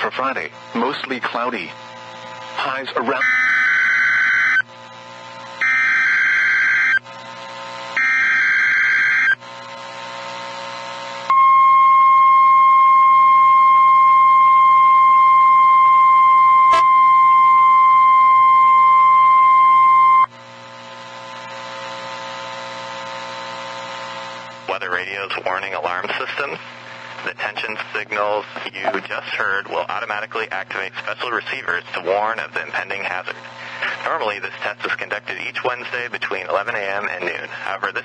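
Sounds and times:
radio hiss: 0.0s - 3.3s, 23.3s - 38.0s
steady warning alarm tone: 1.4s - 4.7s, 5.6s - 7.1s, 8.0s - 9.5s, 11.3s - 20.3s.

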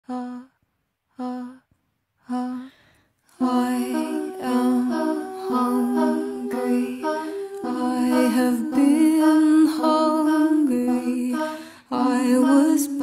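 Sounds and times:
hummed notes: 3.4s - 13.0s
layered vocal chord: 3.4s - 13.0s.

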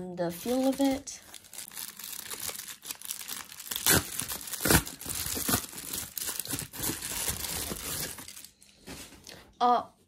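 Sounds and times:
plastic mailer crinkling: 0.3s - 8.7s
plastic mailer ripping: 0.4s - 8.5s.

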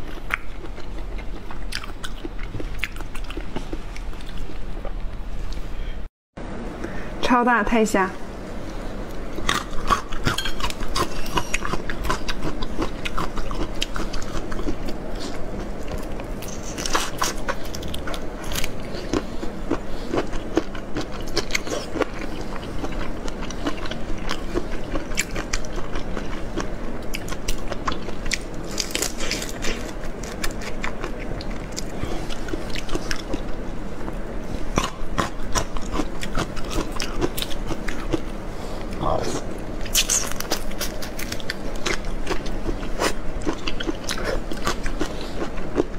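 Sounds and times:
wet chewing and sucking: 39.8s - 45.9s.

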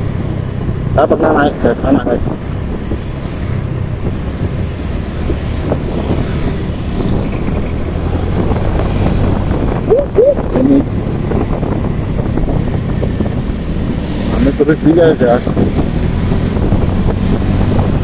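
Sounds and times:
road traffic rumble: 0.0s - 18.0s.

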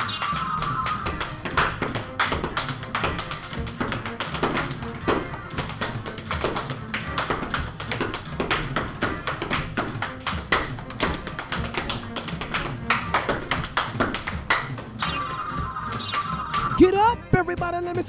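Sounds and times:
claps and chest slaps: 0.0s - 16.8s.

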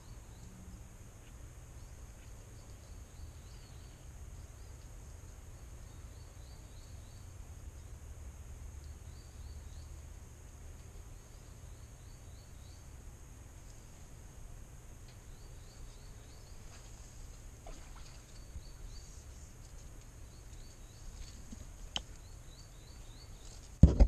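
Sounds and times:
high insect hiss: 0.0s - 23.8s
loud thump: 23.8s - 24.0s.

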